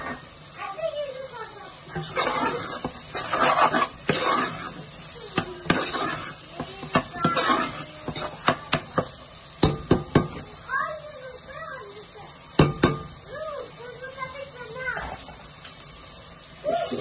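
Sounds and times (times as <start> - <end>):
soft sizzle: 0.0 - 17.0
metal spoon scraping a pot: 1.9 - 9.1.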